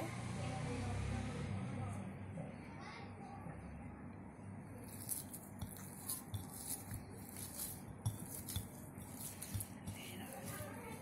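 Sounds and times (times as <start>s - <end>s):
hand kneading dough in glass bowl: 4.8s - 11.0s.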